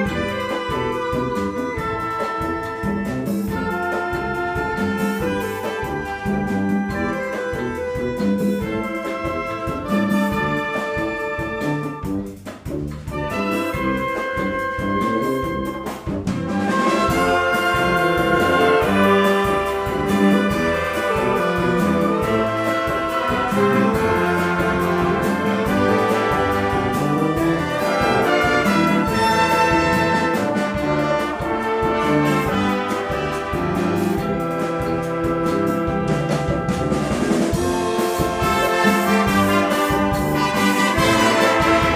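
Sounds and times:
wind band playing: 0.0 - 41.9.

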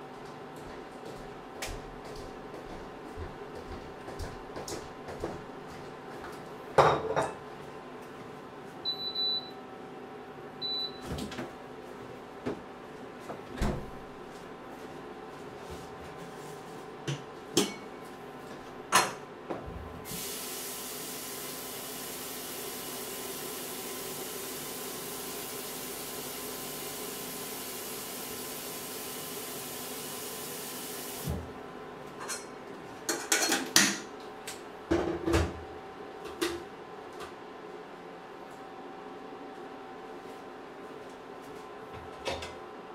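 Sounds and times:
pots and utensils clattering: 33.1 - 34.1.

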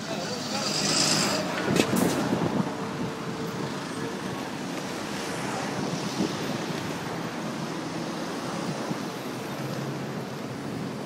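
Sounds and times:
road traffic passing: 0.0 - 11.0
wind buffeting microphone: 1.2 - 7.8.

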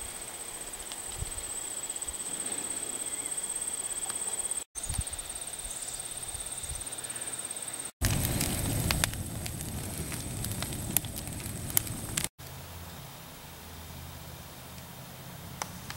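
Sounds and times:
high-pitched insect trill: 0.1 - 7.9
soft low bumps: 8.0 - 12.3.

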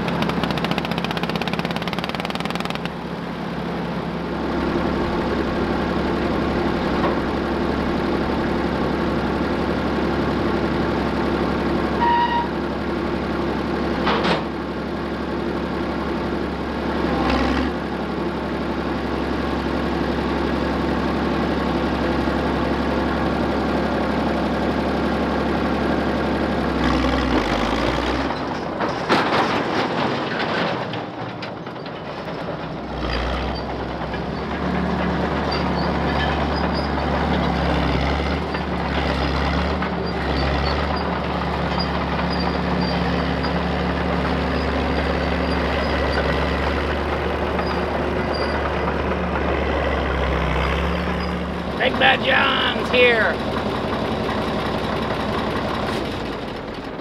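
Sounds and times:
diesel engine running: 0.0 - 57.0
steel tracks clanking: 28.3 - 37.8.

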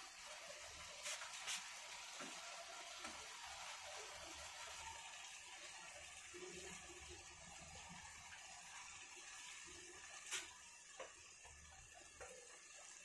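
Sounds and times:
curry simmering in a pan: 0.0 - 13.0.

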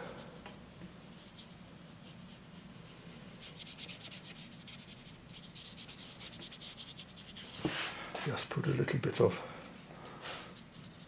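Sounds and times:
brush stroking on paper: 1.1 - 8.5, 10.2 - 11.0.

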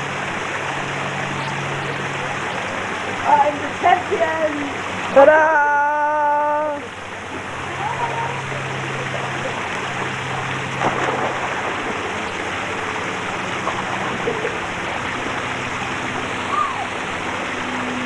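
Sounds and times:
pool water rushing and splashing: 0.0 - 18.0
steady low hum: 0.0 - 18.0
loud water splash: 7.2 - 18.0.

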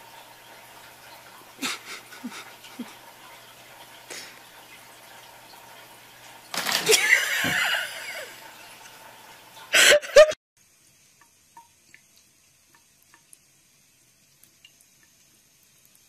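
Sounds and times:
water trickling from tap: 0.0 - 9.9, 11.0 - 16.0
cat licking water: 0.4 - 5.8.

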